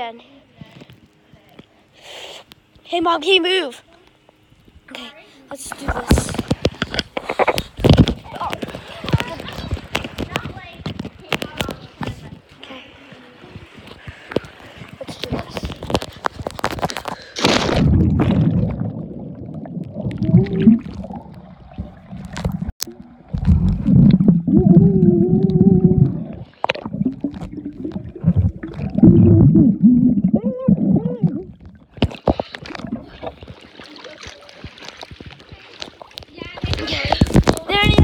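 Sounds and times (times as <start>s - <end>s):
muffled underwater gurgling: 5.8s - 38.0s
water splash: 15.2s - 30.3s, 30.9s - 37.7s
low wavering tones: 18.5s - 31.9s.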